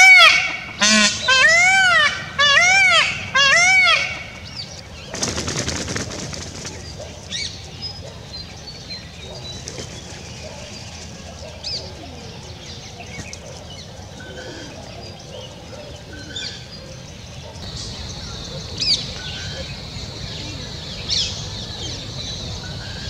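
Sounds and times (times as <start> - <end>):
wings flapping: 5.0 - 7.3, 9.6 - 10.4
pigeons cooing: 9.2 - 23.0
bird chirps: 17.5 - 23.0.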